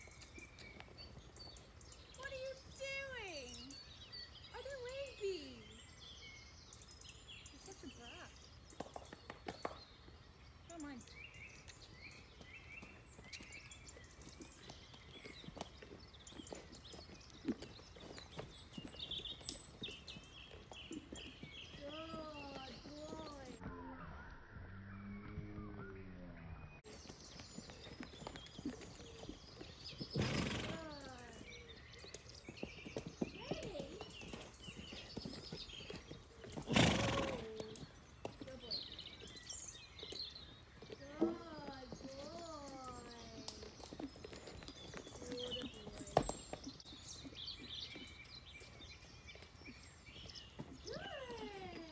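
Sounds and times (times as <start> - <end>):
horse hooves thudding on mud: 0.0 - 23.8, 26.8 - 51.9
horse neighing: 36.6 - 37.6.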